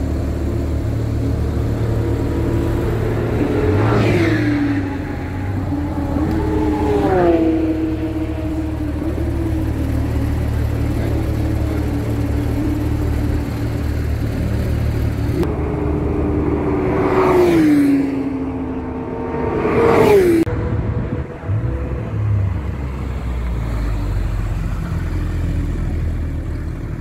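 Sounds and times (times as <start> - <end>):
sports car engines rumbling: 0.0 - 27.0
car passing by: 3.4 - 7.7.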